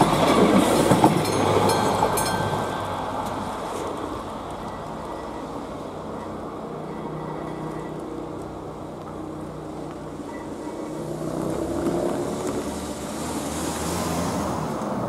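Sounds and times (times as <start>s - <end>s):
car engine approaching: 11.0s - 15.0s.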